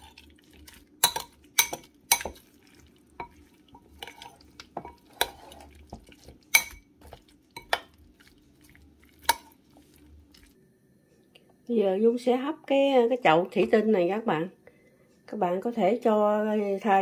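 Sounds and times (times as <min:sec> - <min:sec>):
spoon scraping in bowl: 0:01.0 - 0:08.0.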